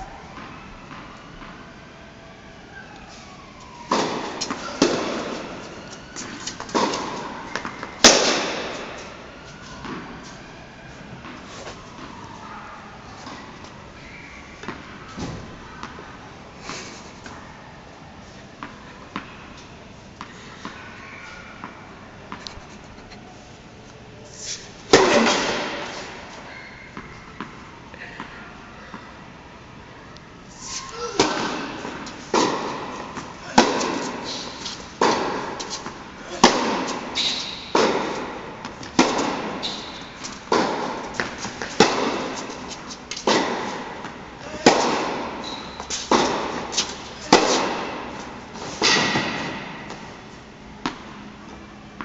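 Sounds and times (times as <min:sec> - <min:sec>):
tennis ball bouncing on court: 0:03.9 - 0:09.0, 0:09.8 - 0:10.2, 0:31.1 - 0:50.1, 0:50.8 - 0:51.4.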